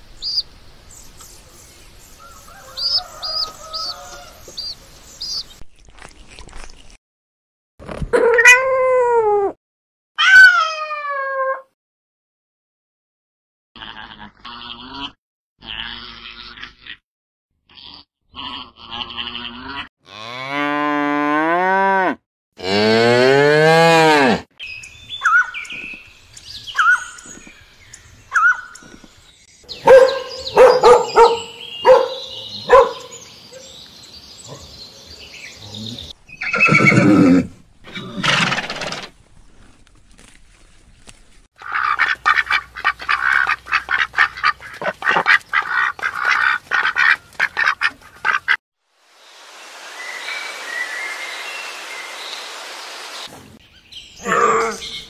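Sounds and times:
farm animal calls: 0:02.2 - 0:05.4, 0:54.2 - 0:55.0.

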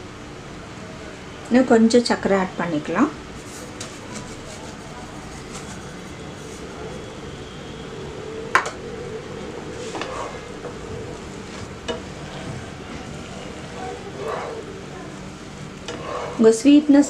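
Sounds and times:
wooden spatula stirring: 0:03.3 - 0:07.1, 0:09.7 - 0:16.7.

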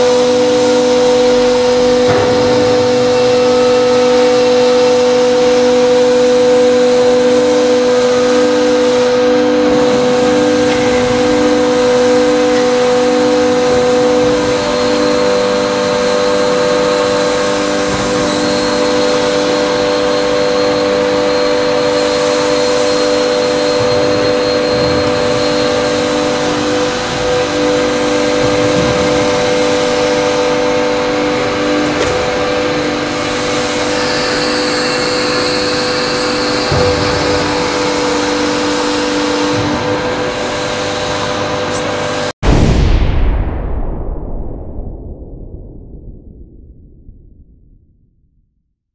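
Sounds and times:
hydraulic machine whine: 0:00.0 - 0:42.4
low pulsing throb: 0:42.4 - 0:48.6.

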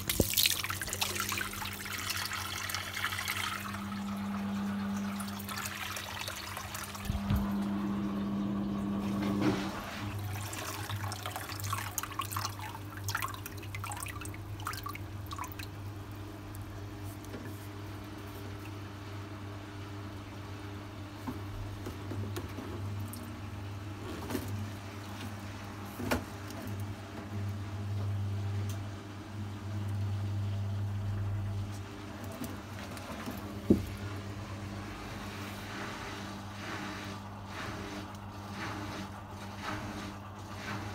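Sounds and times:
water running: 0:00.0 - 0:18.8
washing machine hum: 0:00.0 - 0:40.9.

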